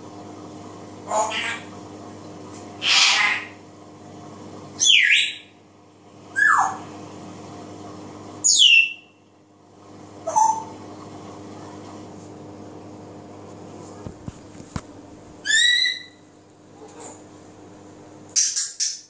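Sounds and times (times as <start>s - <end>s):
parrot whistling calls: 2.8s - 3.6s, 4.8s - 5.5s, 6.3s - 6.8s, 8.4s - 9.1s, 10.2s - 10.7s, 15.4s - 16.2s.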